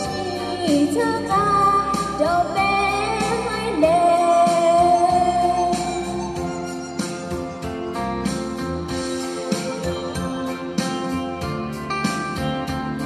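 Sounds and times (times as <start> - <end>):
woman singing into a microphone: 0.0 - 6.4
instrumental accompaniment: 0.0 - 13.0.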